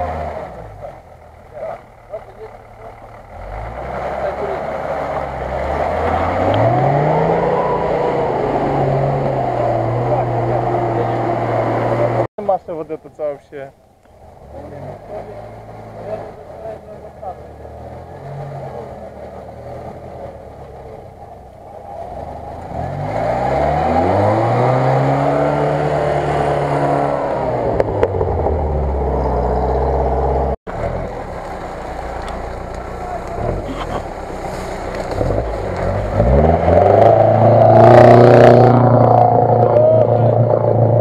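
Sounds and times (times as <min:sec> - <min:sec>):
car engine revving: 0:00.0 - 0:12.3, 0:14.1 - 0:41.0
loud water splash: 0:30.7 - 0:39.9.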